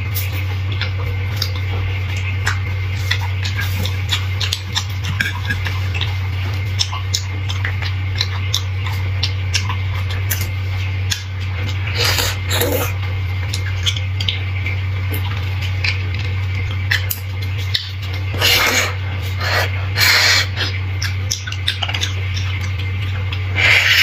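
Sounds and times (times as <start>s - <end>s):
low hum: 0.0s - 24.0s
wet mouth clicks and smacks: 0.3s - 14.5s, 15.2s - 24.0s
slurping from a bone: 11.7s - 13.0s, 18.3s - 22.6s, 23.4s - 24.0s.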